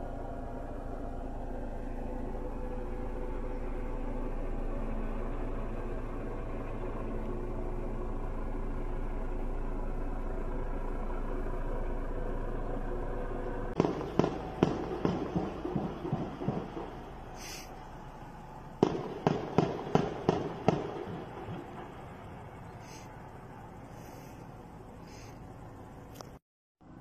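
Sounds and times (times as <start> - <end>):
helicopter hovering: 0.0 - 26.1
echoing explosive bangs: 13.8 - 22.7.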